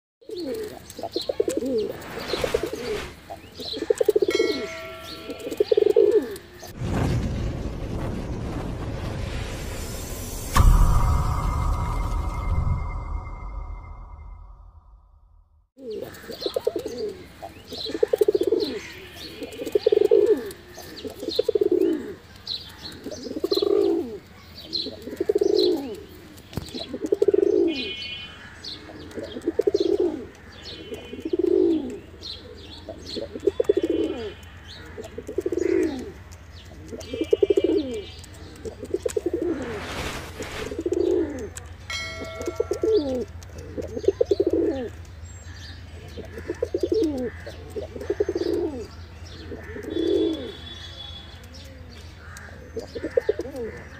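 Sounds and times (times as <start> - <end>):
pigeon cooing: 0.2 - 6.4, 17.9 - 22.3, 23.0 - 27.9, 28.8 - 36.2, 40.7 - 44.9, 46.1 - 48.9, 49.6 - 50.6.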